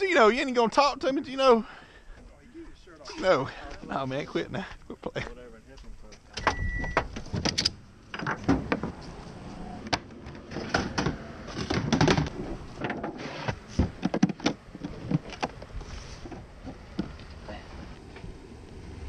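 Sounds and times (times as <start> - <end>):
short high beep: 6.4 - 7.0
handling clicks and knocks on plastic: 9.9 - 17.4.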